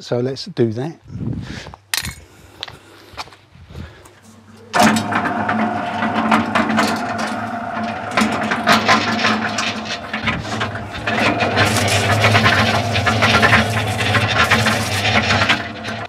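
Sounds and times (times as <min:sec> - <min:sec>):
cement mixer motor humming: 0:04.2 - 0:16.0
mixer drum rattling: 0:04.2 - 0:16.0.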